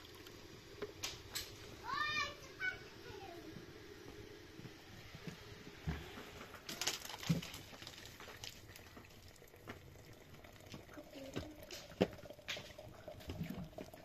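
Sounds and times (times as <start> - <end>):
plastic crinkling: 6.6 - 9.0.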